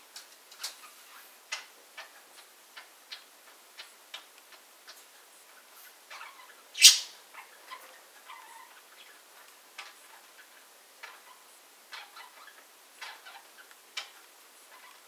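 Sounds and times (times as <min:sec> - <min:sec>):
budgerigars clicking: 0:01.5 - 0:15.0
sharp bird chirp: 0:06.8 - 0:07.2.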